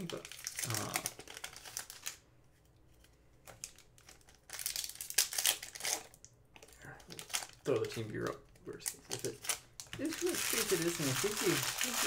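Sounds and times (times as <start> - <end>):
foil wrapper crinkling: 0.0 - 2.2, 3.6 - 6.2, 7.1 - 12.0.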